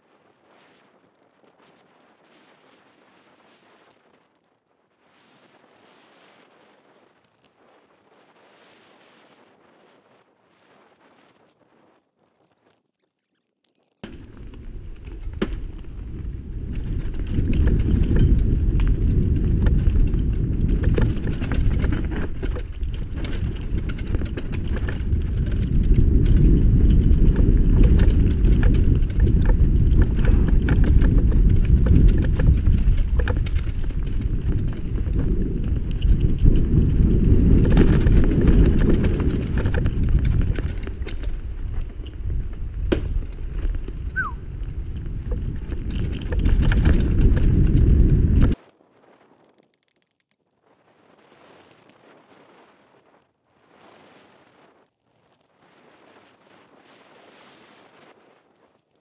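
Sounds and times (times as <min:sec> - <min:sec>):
bike rattling clicks: 0:14.0 - 0:48.6
wind and tyre rumble: 0:14.0 - 0:49.7.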